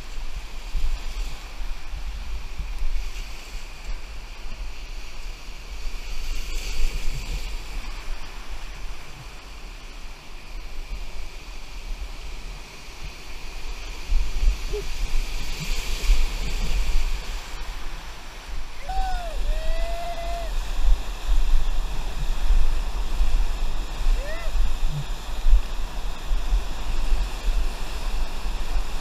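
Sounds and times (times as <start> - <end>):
wind buffeting microphone: 10.6 - 29.0
whitewater rapids rushing: 14.4 - 29.0.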